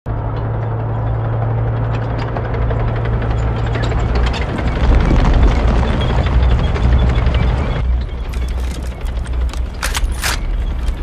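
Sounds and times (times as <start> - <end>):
low rumbling drone: 0.1 - 11.0
sharp cracks and ticks: 8.2 - 11.0.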